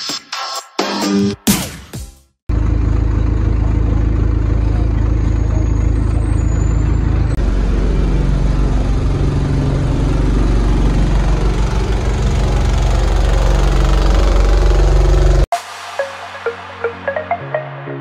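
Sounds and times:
bus diesel engine humming: 2.5s - 15.5s.

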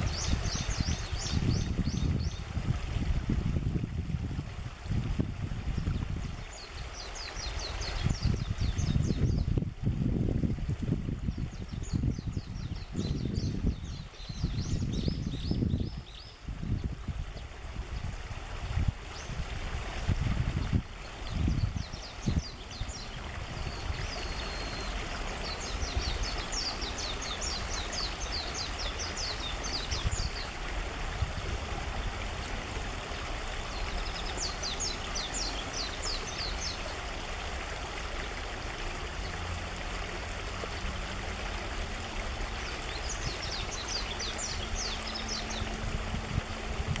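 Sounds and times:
bird twittering song: 0.0s - 2.4s, 5.8s - 9.6s, 11.3s - 18.2s, 20.5s - 30.6s, 33.7s - 37.0s, 42.5s - 46.0s.

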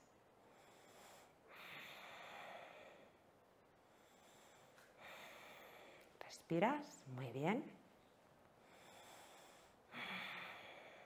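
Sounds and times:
person breathing faintly: 3.8s - 6.2s.

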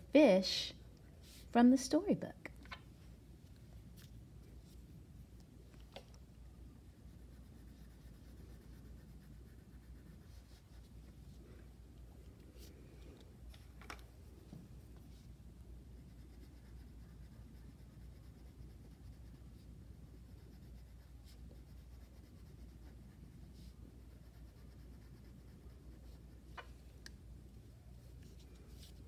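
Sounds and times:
low steady hum: 0.0s - 29.0s
crayon scratching on paper: 7.0s - 11.3s, 15.0s - 26.6s.

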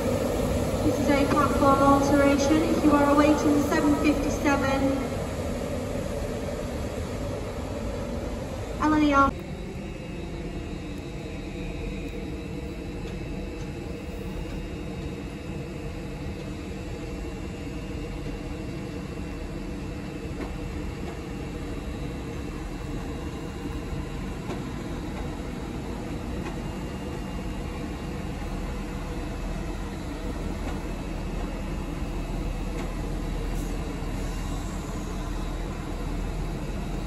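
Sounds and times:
diesel train passing: 0.0s - 11.9s, 21.0s - 37.0s.

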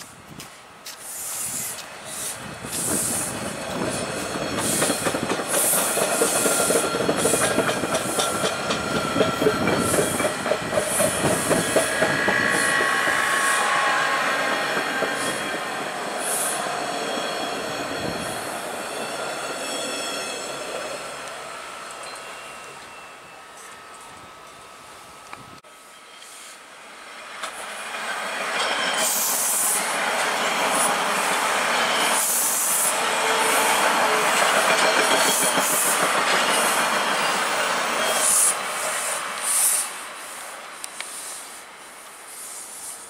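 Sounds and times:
train wheels clacking over rail joints: 1.8s - 13.5s, 30.6s - 39.8s
high-pitched wheel squeal: 16.2s - 20.6s.

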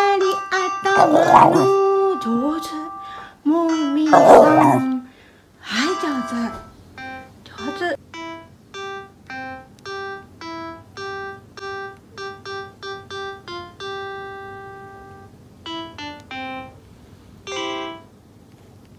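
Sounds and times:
simple piano melody: 5.9s - 16.8s, 17.4s - 18.2s.

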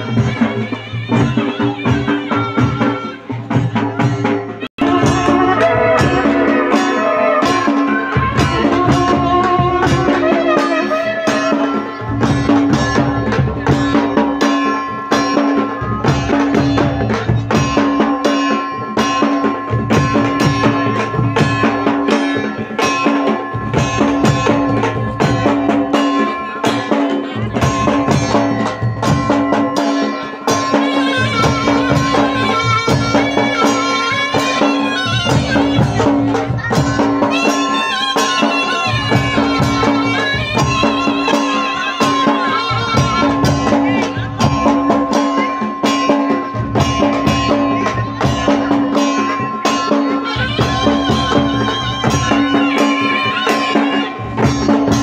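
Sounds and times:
dhol drums beating: 0.0s - 55.0s
held drone note: 4.8s - 12.1s
reedy wind melody: 4.8s - 13.0s.

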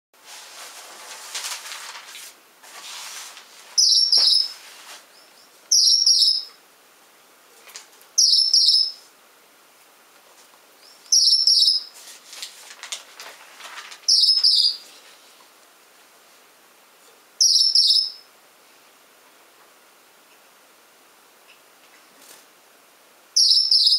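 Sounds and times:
finch high-pitched call: 3.8s - 4.6s, 5.4s - 6.6s, 8.2s - 9.0s, 10.8s - 11.9s, 14.1s - 14.8s, 17.4s - 18.2s, 23.4s - 23.9s.

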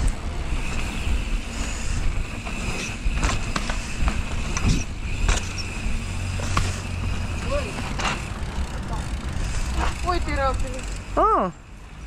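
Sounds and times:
wind on microphone: 0.0s - 7.3s
bike rattling over bumps: 0.0s - 12.0s
bike rolling on dirt trail: 0.0s - 12.0s.

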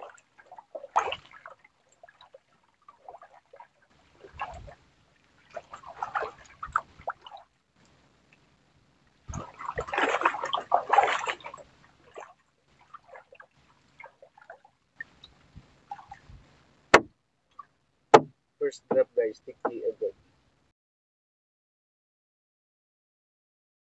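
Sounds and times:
sea water splashing and dripping: 0.0s - 19.0s
sharp knock: 16.9s - 17.1s.

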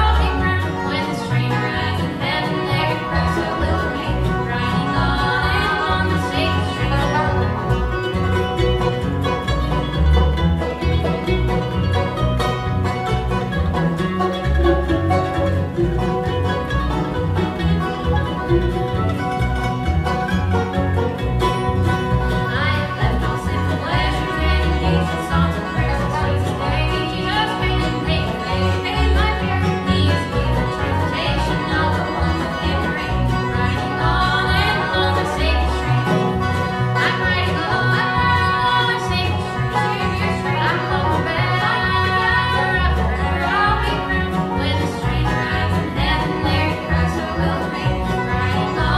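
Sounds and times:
women singing in harmony: 0.0s - 7.6s, 22.4s - 35.9s, 36.9s - 48.9s
bluegrass band playing: 0.0s - 48.9s.

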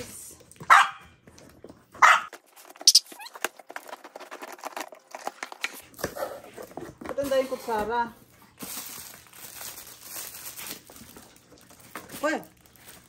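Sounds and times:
small dog barking: 0.7s - 1.1s, 2.0s - 2.3s.

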